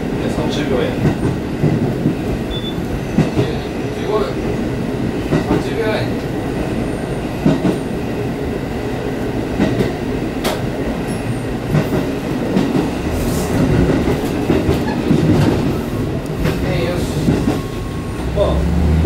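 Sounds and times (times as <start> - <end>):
diesel railcar engine running: 0.8 - 19.0.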